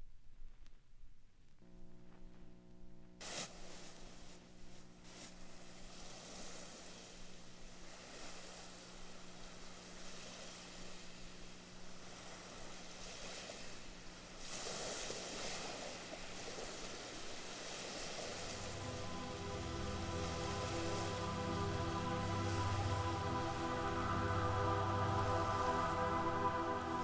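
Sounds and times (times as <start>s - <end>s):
synthesized wind-like noise: 3.6s - 27.0s
low drone: 18.3s - 27.0s.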